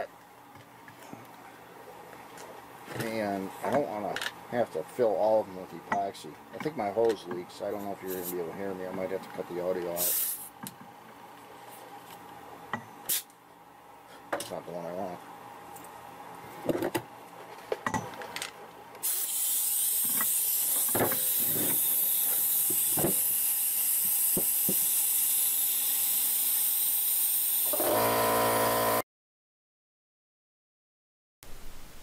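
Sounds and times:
compressed air hissing from hose: 10.0 - 10.5, 19.0 - 27.7
humming tone: 27.7 - 29.0.

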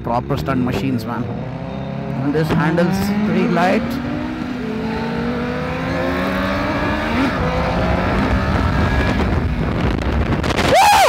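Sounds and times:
motorcycle engine accelerating: 0.0 - 10.7.

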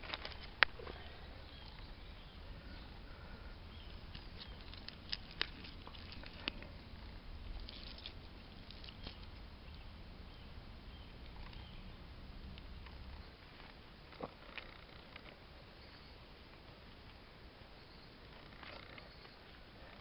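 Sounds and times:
hand scraping moist clay: 2.7 - 9.5.

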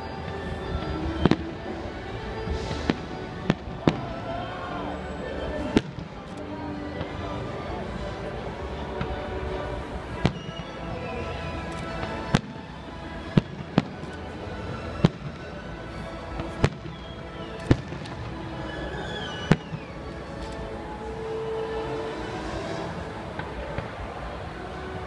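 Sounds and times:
background music: 0.0 - 25.0
fireworks bursting with bangs: 2.4 - 4.2, 5.6 - 6.3, 9.0 - 11.2, 11.8 - 20.7.

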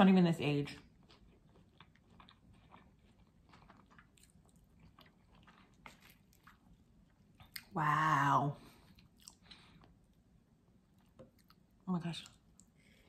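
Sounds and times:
person chewing: 0.8 - 7.8, 8.6 - 13.0.

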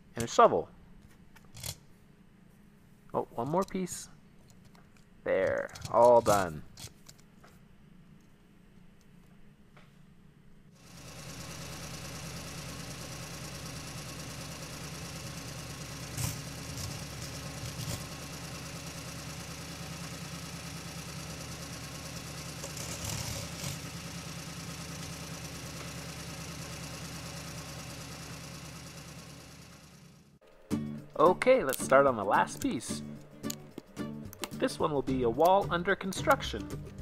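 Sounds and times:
engine idling: 10.8 - 30.4.

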